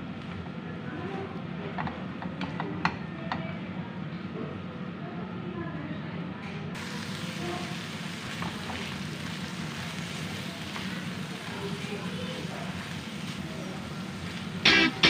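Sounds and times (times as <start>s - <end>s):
corn kernels sizzling in a pan: 6.8s - 15.0s.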